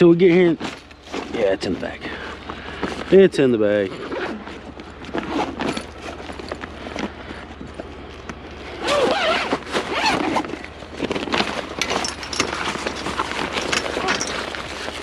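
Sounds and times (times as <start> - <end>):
fabric bag rustling: 8.6 - 15.0.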